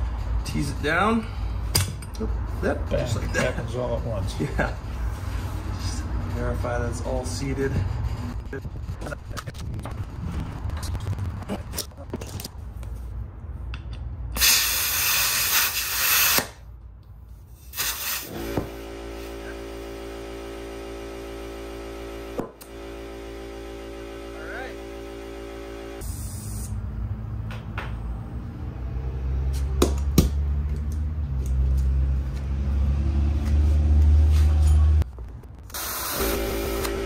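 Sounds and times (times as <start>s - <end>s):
low rumble: 7.6s - 13.6s
air compressor motor humming: 17.9s - 26.6s, 35.8s - 37.0s.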